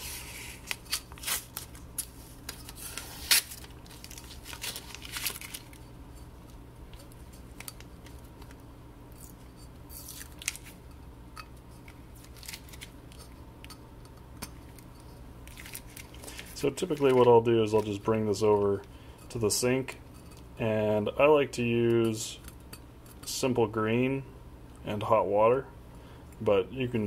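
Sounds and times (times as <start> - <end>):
masking tape peeling and crinkling: 0.0 - 5.9, 6.9 - 10.8, 11.9 - 13.2, 14.6 - 17.9
low steady hum: 0.0 - 27.0.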